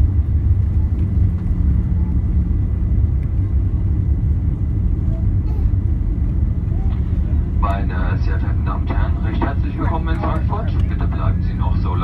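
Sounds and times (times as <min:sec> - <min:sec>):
airliner cabin rumble: 0:00.0 - 0:12.0
jet engines running: 0:00.0 - 0:12.0.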